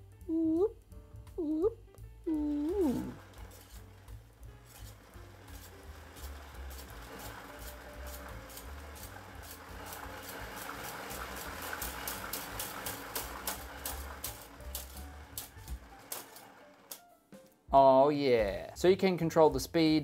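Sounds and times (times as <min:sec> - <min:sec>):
electric gear motor: 0:02.3 - 0:17.0
ticking spool: 0:02.3 - 0:17.1.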